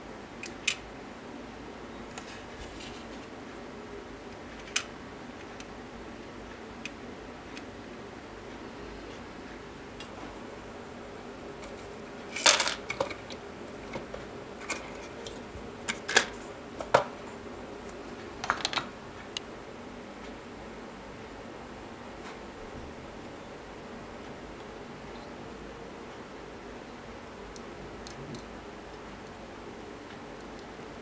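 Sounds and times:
steady background hiss: 0:00.0 - 0:31.0
toy parts clattering on table: 0:12.3 - 0:13.2.

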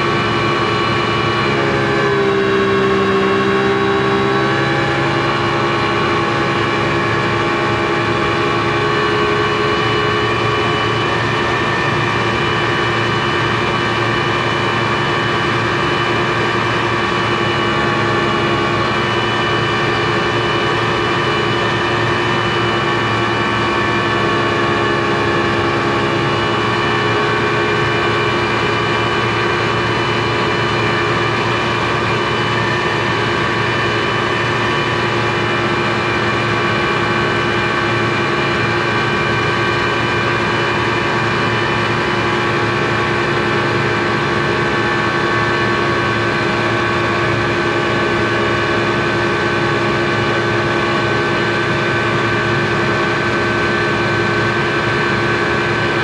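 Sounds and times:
speedboat engine droning: 0:00.0 - 0:56.0.

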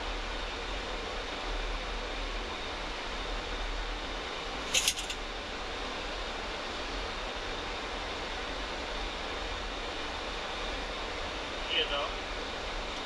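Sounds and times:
airflow and air conditioning hiss: 0:00.0 - 0:13.0
rattle of sharp clicks: 0:04.7 - 0:05.2.

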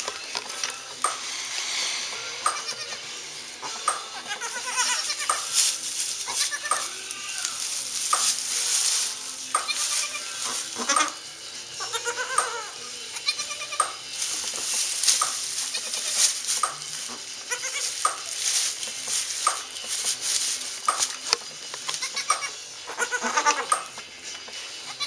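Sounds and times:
rustling straw: 0:00.0 - 0:25.0
goats bleating softly: 0:02.2 - 0:05.5, 0:06.2 - 0:07.8, 0:11.8 - 0:14.0, 0:17.5 - 0:18.2, 0:21.9 - 0:23.8.

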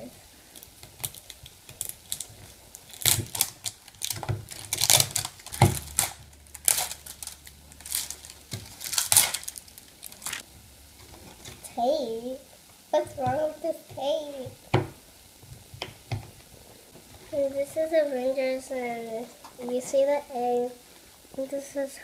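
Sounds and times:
plastic film crinkling and tearing: 0:00.4 - 0:10.4.

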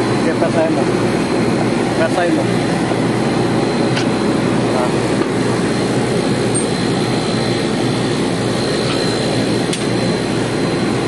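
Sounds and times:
faint high whine: 0:00.0 - 0:11.0
machinery rushing drone: 0:00.0 - 0:11.0.

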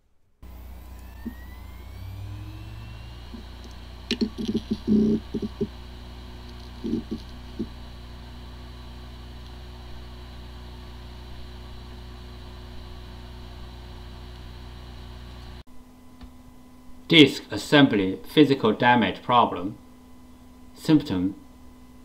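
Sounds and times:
hard disk whine: 0:00.0 - 0:22.0
hard disk spinning hum: 0:00.4 - 0:22.0
hard disk ticks and knocks: 0:03.4 - 0:05.8, 0:06.4 - 0:07.8.

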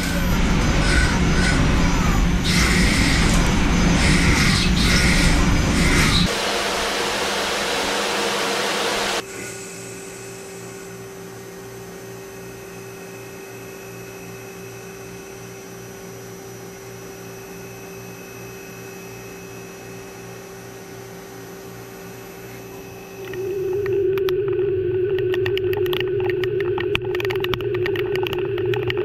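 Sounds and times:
loud machine hiss: 0:00.0 - 0:11.4
steady machine hum: 0:00.0 - 0:29.0
whining tones: 0:22.1 - 0:29.0.

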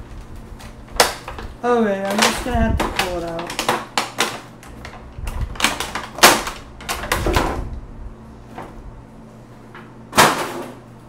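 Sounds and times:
plastic packaging crackling: 0:00.0 - 0:07.5.

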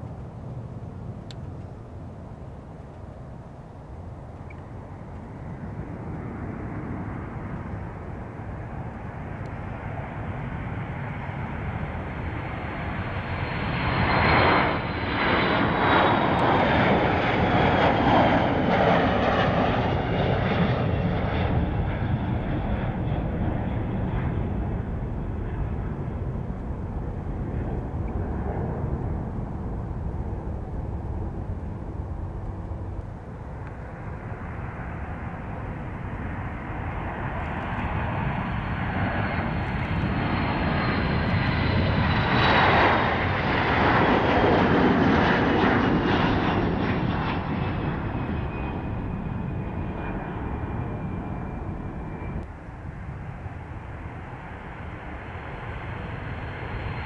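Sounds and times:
jet taking off: 0:04.0 - 0:57.0
high jet whine falling in pitch: 0:13.0 - 0:56.8.

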